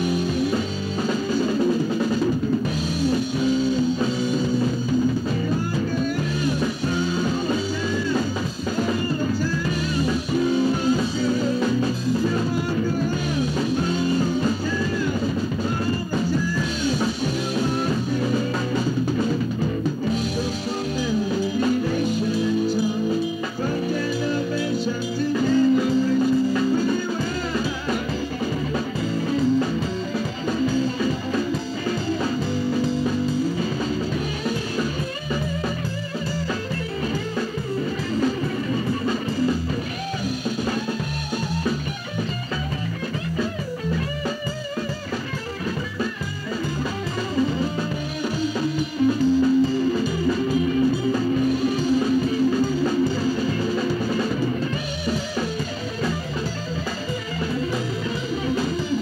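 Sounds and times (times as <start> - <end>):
drum kit beat: 0.0 - 59.0
guitar: 0.0 - 59.0.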